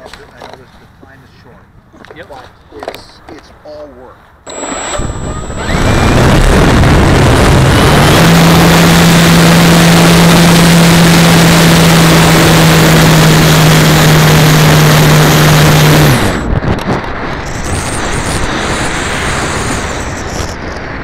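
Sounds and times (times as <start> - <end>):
electric motor drone: 4.5 - 16.5
wind rushing over airframe: 4.6 - 21.0.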